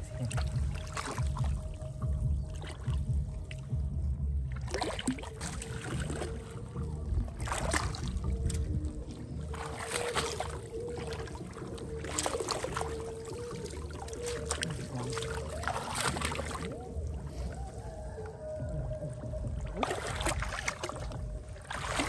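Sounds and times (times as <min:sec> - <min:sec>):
low rumble: 0:00.0 - 0:22.0
hands splashing in water: 0:07.4 - 0:08.7, 0:09.4 - 0:17.1, 0:19.6 - 0:22.0.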